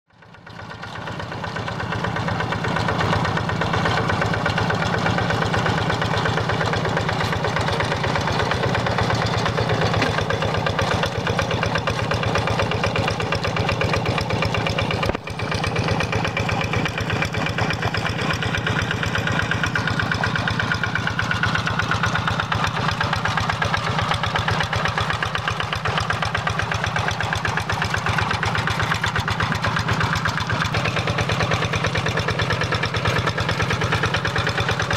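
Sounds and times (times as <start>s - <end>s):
diesel engine chugging: 0.2s - 34.9s.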